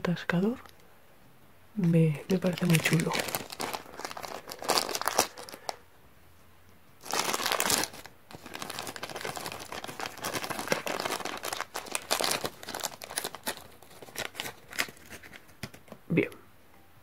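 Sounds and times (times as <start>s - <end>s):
plastic bag crinkling: 2.2s - 5.8s, 7.0s - 15.8s.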